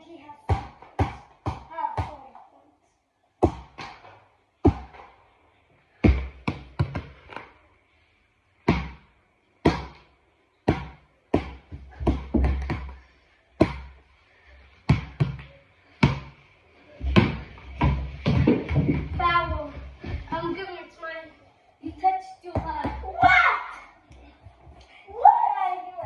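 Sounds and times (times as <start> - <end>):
ball bouncing on tiled floor: 0.4 - 2.3, 3.4 - 5.1, 6.0 - 7.5, 8.6 - 13.0, 13.6 - 14.0, 14.8 - 16.4, 17.0 - 20.2, 22.5 - 23.3.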